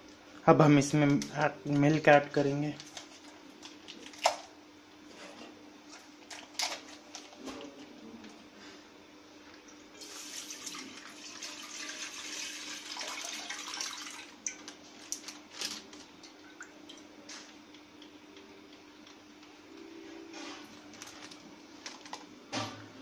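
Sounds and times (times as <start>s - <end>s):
plastic packet crinkling: 5.9s - 7.4s, 14.6s - 16.1s, 20.8s - 22.3s
milk pouring into pan: 10.0s - 14.6s.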